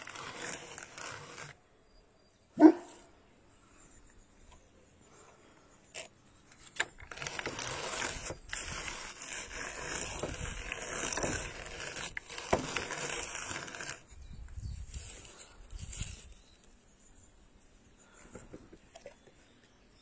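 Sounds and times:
drum carder scratchy rustle: 0.0 - 1.6, 6.7 - 16.8.

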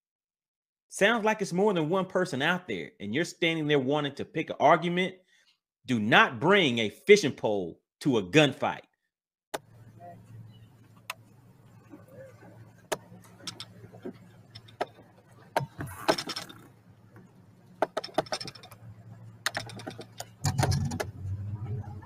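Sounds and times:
fishing reels clicking and rattling: 13.2 - 15.1, 15.9 - 16.7, 17.8 - 18.8, 19.5 - 21.0.

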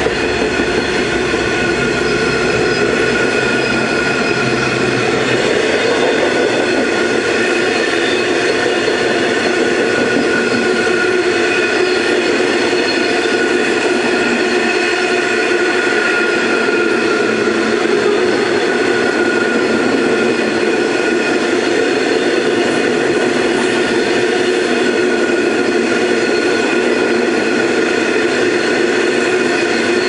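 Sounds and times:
high ringing tones: 0.0 - 15.7
steel wheels rolling on rails: 0.0 - 30.0.

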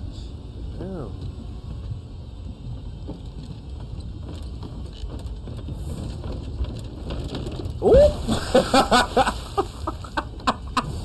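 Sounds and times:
low rumbling ambience: 0.0 - 11.0
faint ticks and creaks: 0.1 - 8.2.

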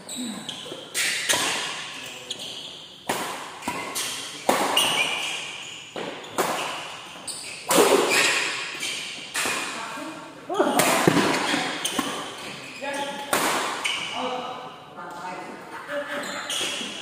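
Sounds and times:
rackets hitting shuttlecock: 0.9 - 2.1, 3.0 - 9.8, 10.7 - 14.1.

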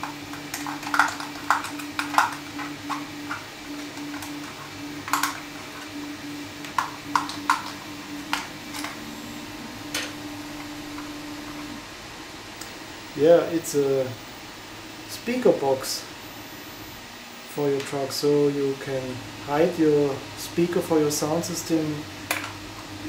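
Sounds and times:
plastic parts clicking and tapping: 0.0 - 5.9
steady low hum: 0.0 - 23.0.

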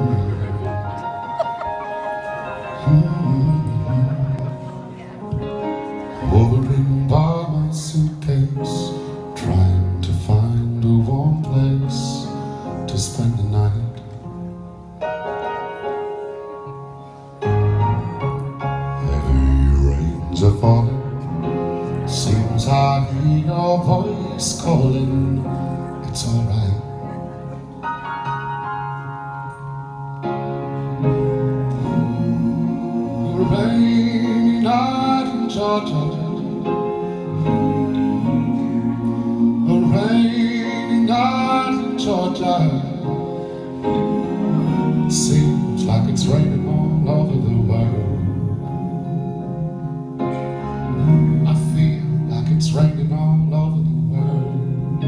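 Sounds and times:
male vocal group singing soul ballad: 6.2 - 12.3, 19.0 - 21.0, 31.7 - 49.1
lead voice sliding: 19.0 - 20.9.

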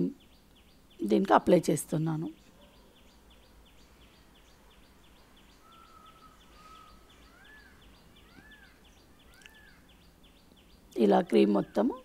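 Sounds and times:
bird chirping: 0.0 - 12.0
rising and falling bird call: 5.1 - 10.6.

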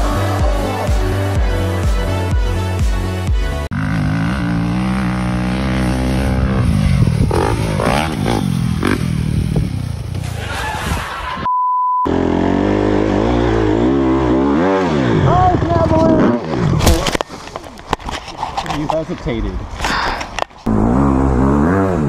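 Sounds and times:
dirt bike engines revving: 0.0 - 2.8, 3.7 - 11.5, 12.1 - 17.2, 20.6 - 22.0
short steady beep: 11.5 - 12.1.

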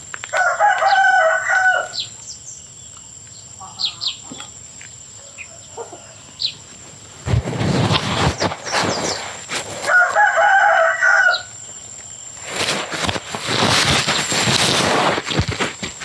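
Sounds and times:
rooster crowing: 0.3 - 2.1, 9.8 - 11.6
scratchy noise: 7.2 - 10.3, 12.4 - 16.0.

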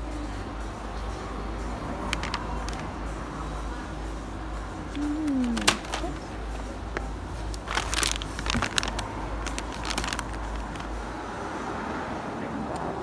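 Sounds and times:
steady low hum: 0.0 - 11.8
plastic packaging crinkling: 2.1 - 2.9, 5.2 - 6.4, 7.4 - 11.0.

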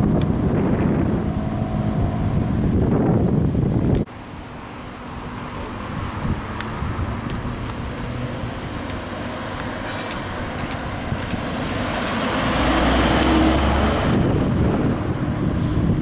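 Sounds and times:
car driving past: 6.5 - 15.1.

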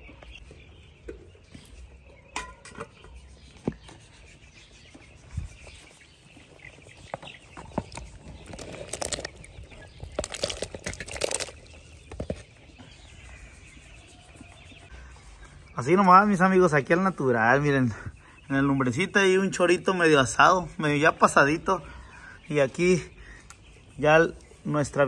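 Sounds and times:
pot boiling and bubbling: 7.8 - 12.3
wood fire crackling: 8.3 - 11.8.

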